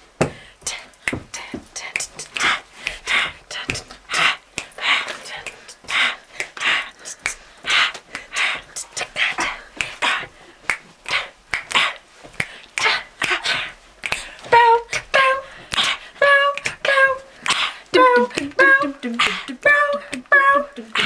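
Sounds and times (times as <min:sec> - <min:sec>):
girls making vocal beat: 0:00.3 - 0:21.0
girls singing short syllables: 0:12.8 - 0:21.0.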